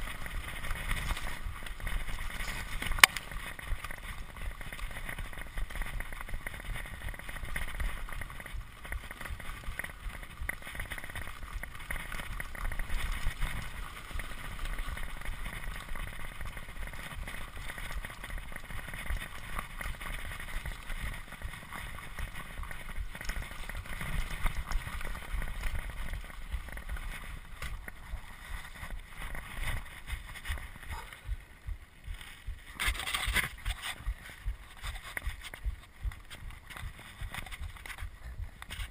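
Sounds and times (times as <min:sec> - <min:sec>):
bike rattling: 0:00.0 - 0:38.9.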